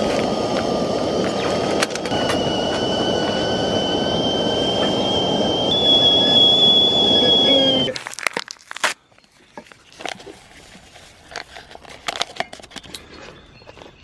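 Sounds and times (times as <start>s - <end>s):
kettle whistling: 0.0s - 8.0s
sachet tearing and crinkling: 7.9s - 9.0s, 9.9s - 12.9s
paper rustles: 7.9s - 13.0s.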